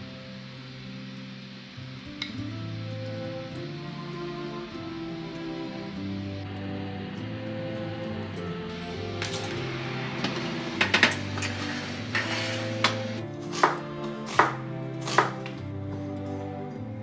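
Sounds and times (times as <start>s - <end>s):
gentle background music: 0.0s - 17.0s
knife chopping on cutting board: 12.1s - 15.6s.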